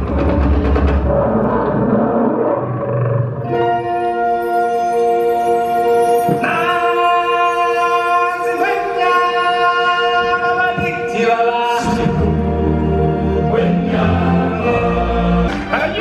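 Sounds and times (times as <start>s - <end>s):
choir singing held chords: 0.4s - 16.0s.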